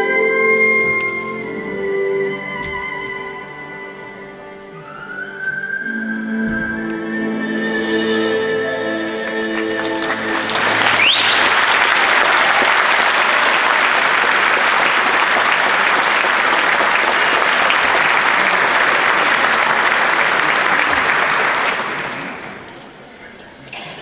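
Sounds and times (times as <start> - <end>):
erhu note: 0.0 - 10.3
audience applauding: 8.8 - 23.0
whistle from crowd: 10.8 - 11.8.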